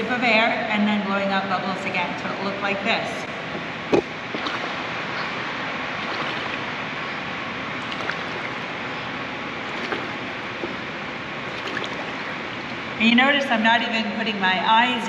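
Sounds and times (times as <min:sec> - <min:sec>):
pool water noise: 0:00.0 - 0:15.0
small water splashes: 0:03.6 - 0:13.0.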